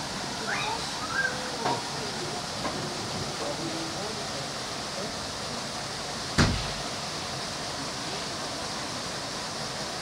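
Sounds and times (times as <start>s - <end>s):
steady background hiss: 0.0s - 10.0s
sharp knock: 6.4s - 6.8s.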